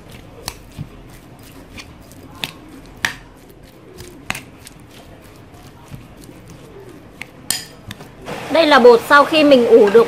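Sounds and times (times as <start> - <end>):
wet squishing of filling: 0.0 - 8.6
spoon clicking against bowl: 7.2 - 8.0.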